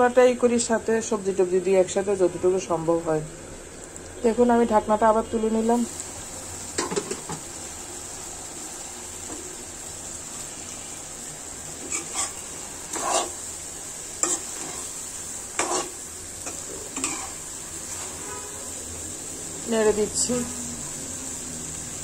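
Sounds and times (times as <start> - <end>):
steady sizzle: 0.0 - 22.0
spatula scraping metal pan: 11.8 - 13.4, 14.2 - 18.6.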